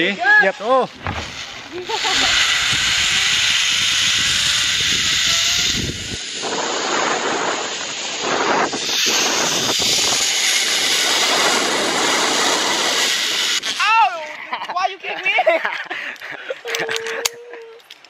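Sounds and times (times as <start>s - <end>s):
zipline pulleys whining on cable: 0.6s - 14.5s
wind rushing on microphone: 0.8s - 14.0s.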